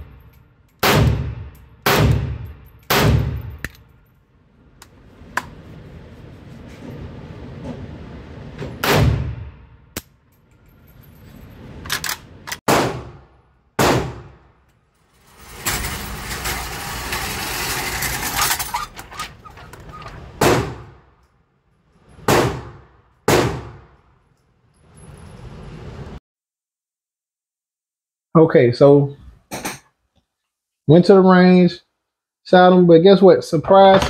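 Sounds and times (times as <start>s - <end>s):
pistol gunshots with reverb: 0.8s - 3.6s, 8.8s - 9.7s, 12.7s - 14.4s, 22.3s - 23.9s.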